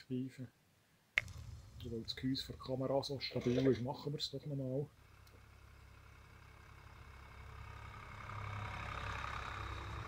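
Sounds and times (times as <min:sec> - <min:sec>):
tractor engine running: 0:04.9 - 0:10.0.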